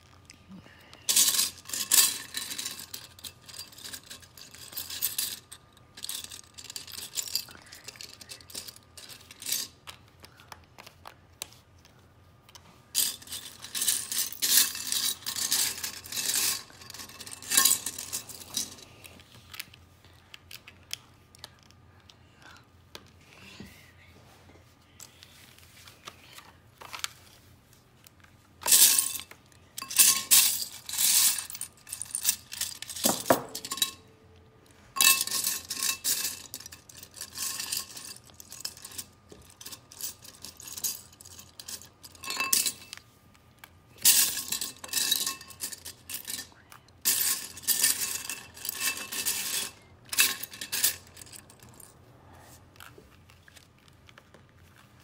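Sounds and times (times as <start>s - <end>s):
plastic pieces rattling in a ceramic bowl: 28.6s - 34.0s, 35.0s - 43.0s, 44.0s - 51.9s.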